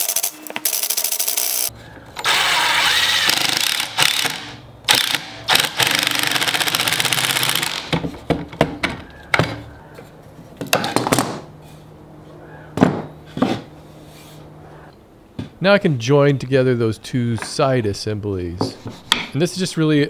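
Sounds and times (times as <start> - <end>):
impact driver hammering screws: 2.2 - 8.0.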